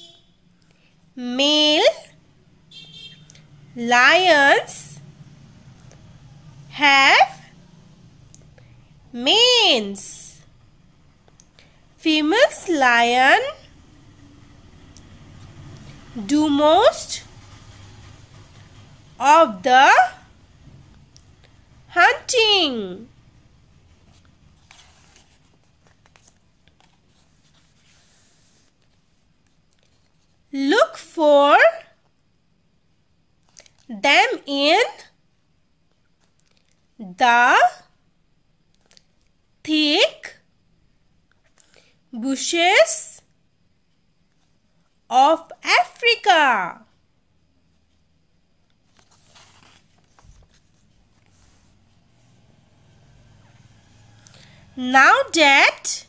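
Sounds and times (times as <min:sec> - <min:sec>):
faint low hum: 0:00.0 - 0:56.0
paper page turning: 0:24.1 - 0:30.4, 0:48.8 - 0:51.8.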